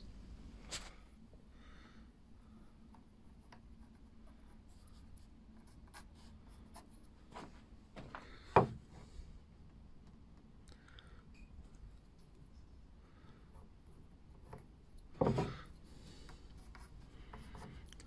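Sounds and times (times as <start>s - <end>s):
pencil scratching on wood: 3.3s - 7.2s, 13.5s - 18.0s.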